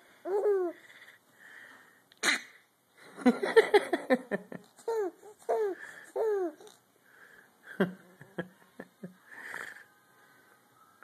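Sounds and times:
baby laughing: 0.3s - 0.8s, 4.8s - 6.8s.

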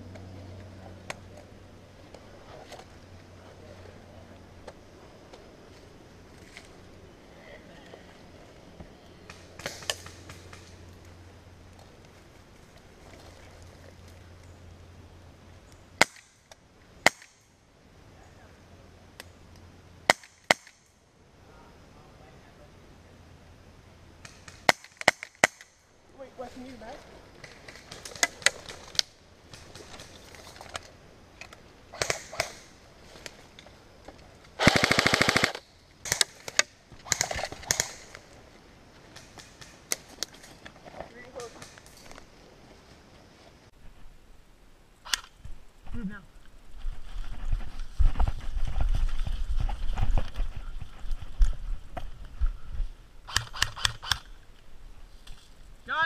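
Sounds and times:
sharp single snaps: 19.2s - 21.0s, 53.3s - 54.3s
airsoft gun cracks: 34.6s - 38.2s, 53.3s - 54.3s.

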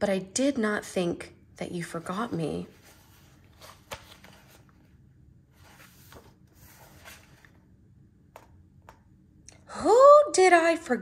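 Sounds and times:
paper pages rustling: 2.1s - 7.6s.

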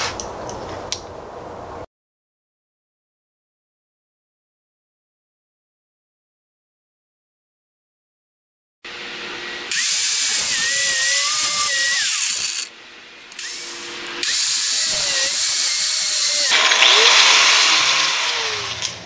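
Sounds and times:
angle grinder cutting: 9.2s - 19.0s.

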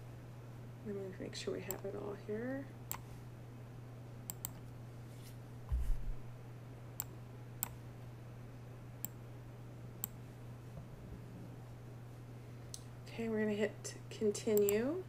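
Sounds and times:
low electrical hum: 0.0s - 15.0s
computer mouse clicking: 1.7s - 1.9s, 4.3s - 4.7s, 10.0s - 10.2s
dull low thump: 5.7s - 6.2s.

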